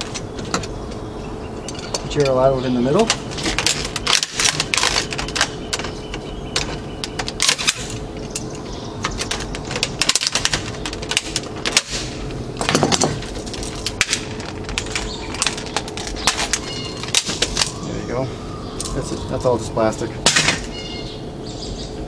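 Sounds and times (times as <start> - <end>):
plastic crunching: 2.9 - 17.8
plastic cracking and snapping: 3.0 - 17.8.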